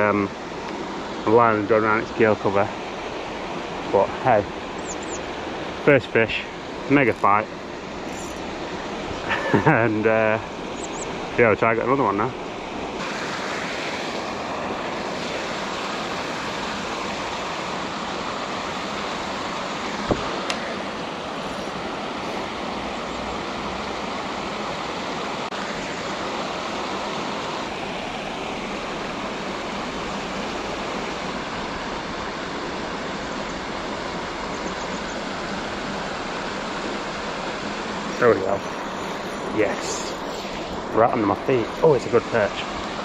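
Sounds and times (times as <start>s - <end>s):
flowing water rushing: 0.0s - 43.0s.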